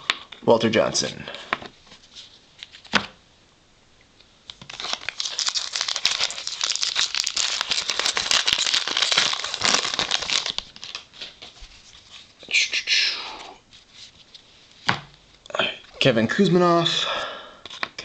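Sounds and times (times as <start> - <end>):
foil wrapper tearing and crinkling: 4.6 - 11.4.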